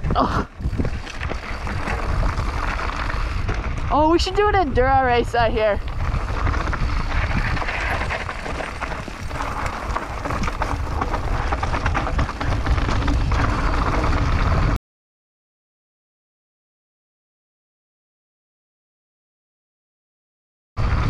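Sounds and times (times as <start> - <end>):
wind rushing over microphone: 0.0 - 14.8, 20.8 - 21.0
bike rattling and clicking: 0.1 - 14.8
tyres crunching on loose stones: 0.6 - 4.5, 5.2 - 14.8.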